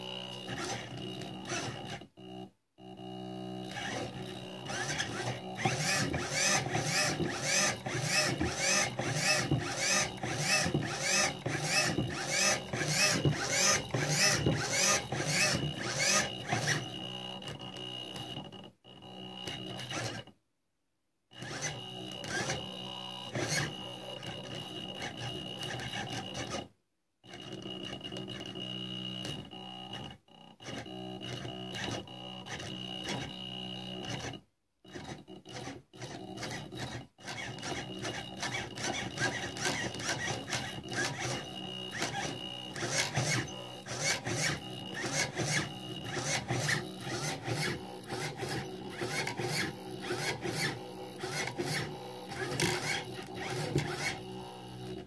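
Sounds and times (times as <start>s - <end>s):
motor whining: 0.0s - 20.3s, 36.4s - 55.0s
rasping gear noise: 3.7s - 18.3s, 36.5s - 55.0s.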